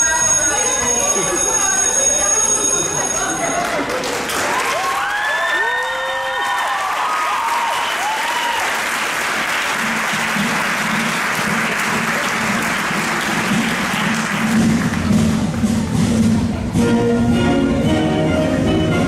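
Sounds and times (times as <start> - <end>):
audience applauding: 3.0 - 15.8
audience cheering: 3.4 - 14.5.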